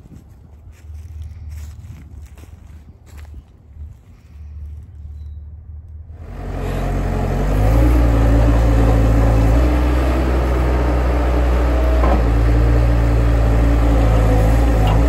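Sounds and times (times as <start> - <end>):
diesel engine running: 5.6 - 15.0.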